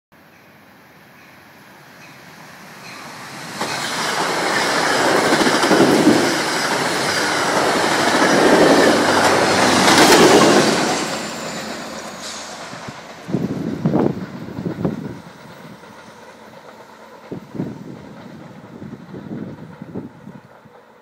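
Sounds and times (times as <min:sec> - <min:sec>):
passenger train passing: 0:00.2 - 0:21.0
wheels clattering over rail joints: 0:02.8 - 0:17.4.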